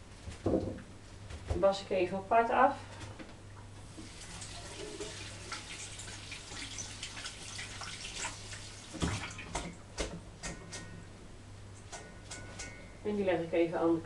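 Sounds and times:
water splashing and dripping: 3.9 - 9.7.

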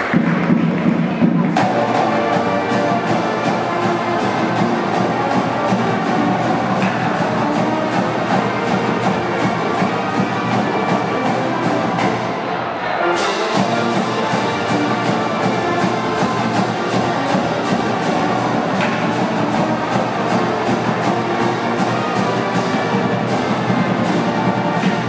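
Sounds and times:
drums and cymbals beat: 0.0 - 12.4, 13.2 - 25.0
brass band playing: 0.0 - 25.0.

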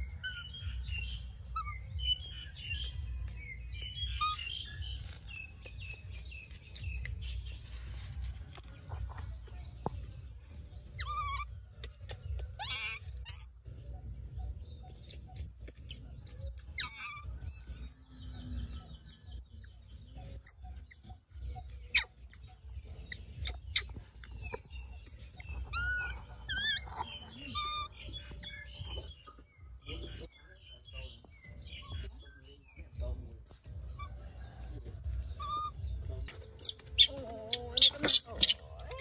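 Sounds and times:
baby monkey whimpering cries: 1.5 - 2.2, 10.8 - 14.1, 14.8 - 17.8, 20.4 - 28.6, 35.3 - 39.0.

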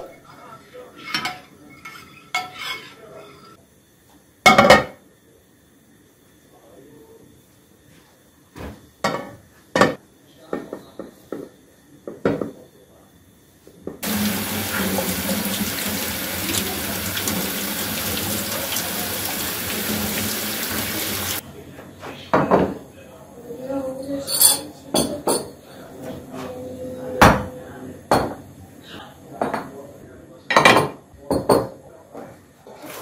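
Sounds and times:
tap running into metal sink: 14.0 - 21.4.

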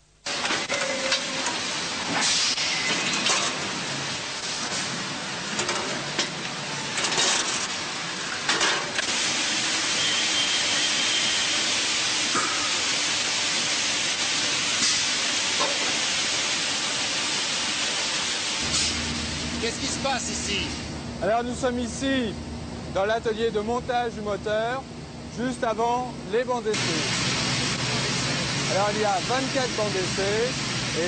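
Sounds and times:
steady machine hiss: 9.0 - 22.3, 25.4 - 31.0.

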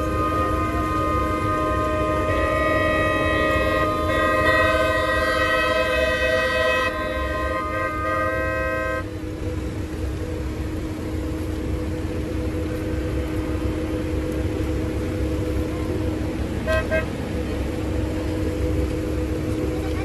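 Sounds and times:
car horns honking: 0.0 - 9.4, 15.3 - 20.0
steady low rumble: 0.0 - 20.0.

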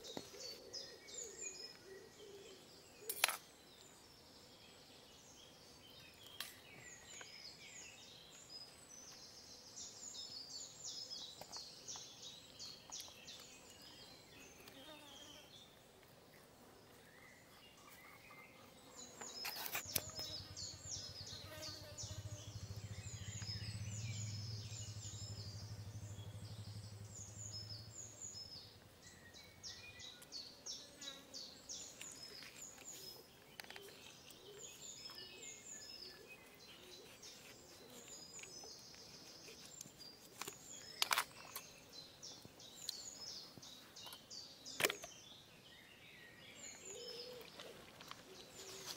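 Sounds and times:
birds chirping: 16.8 - 48.9.

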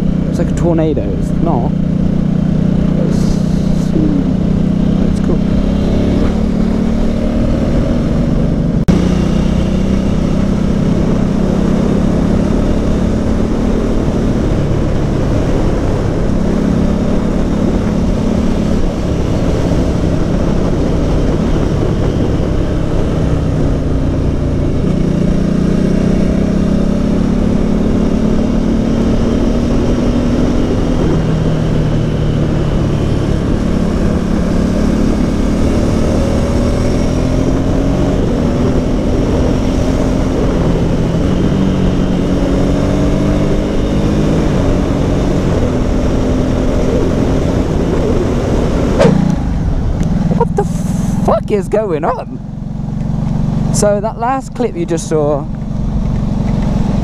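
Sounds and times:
motorcycle engine running: 0.0 - 57.0
wind rush on microphone: 10.1 - 51.6.

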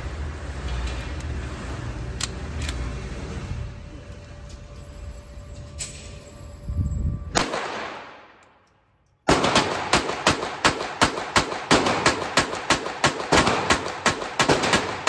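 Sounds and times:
handgun shots: 7.4 - 8.4, 9.3 - 15.0.

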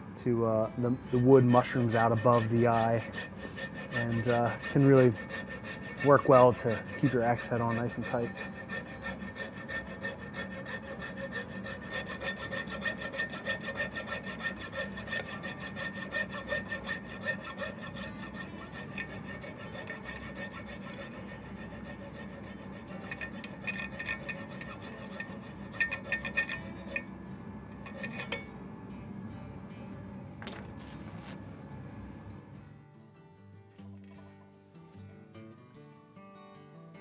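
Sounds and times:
hand saw cutting wood: 0.8 - 27.1, 27.8 - 28.4.

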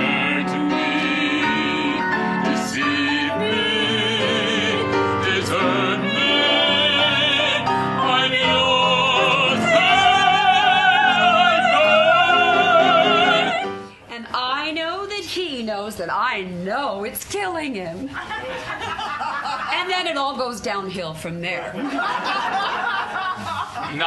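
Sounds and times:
operatic singing: 0.0 - 13.8
grand piano: 0.0 - 14.1.

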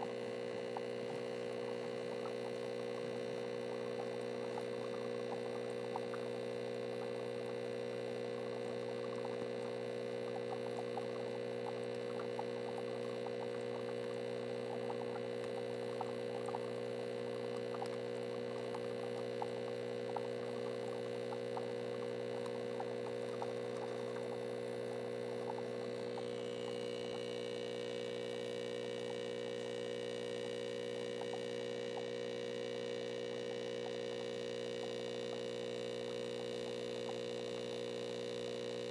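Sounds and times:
electrical hum: 0.0 - 38.9
faint crackling ticks: 0.5 - 7.7, 8.3 - 16.8, 17.5 - 24.5, 25.4 - 27.3, 31.1 - 32.2, 36.1 - 37.8.

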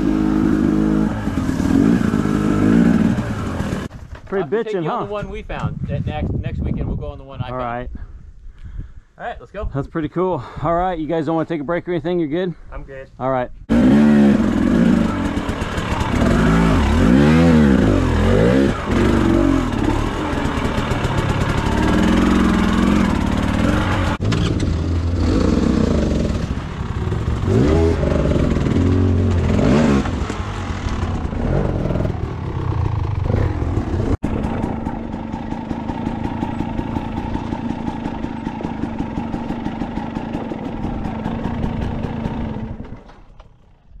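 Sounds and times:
dirt bike engine revving: 0.0 - 3.9, 13.7 - 43.1.

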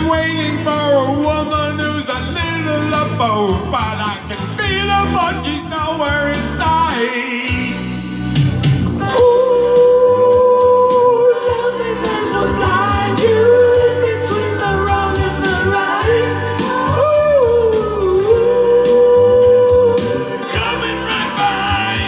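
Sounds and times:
instrumental backing music: 0.0 - 22.0
woman singing into microphone: 9.0 - 20.3.

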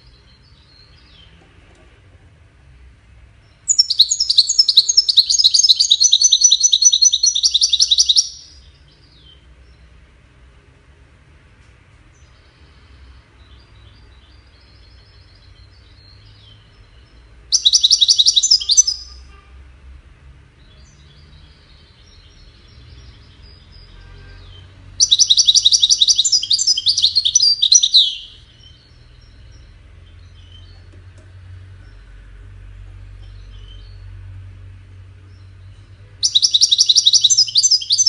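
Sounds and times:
bird twittering: 3.5 - 9.4, 13.1 - 19.3, 25.0 - 30.9, 35.3 - 38.0
goldfinch trilling: 3.7 - 8.6, 17.6 - 19.2, 25.0 - 29.6, 36.2 - 38.0.

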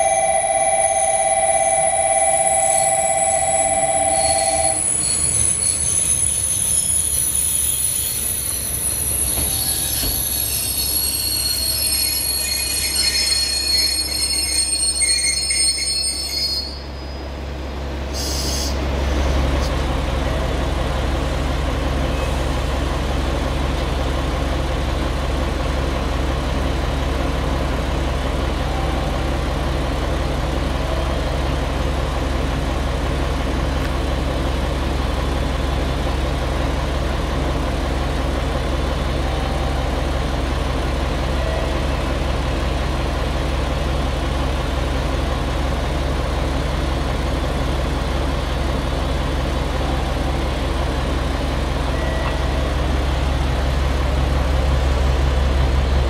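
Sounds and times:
electronic warning tone: 0.0 - 5.4
train brakes and wheels squealing: 0.0 - 17.5, 18.1 - 20.5, 49.6 - 53.4
diesel engine idling: 18.8 - 56.0.

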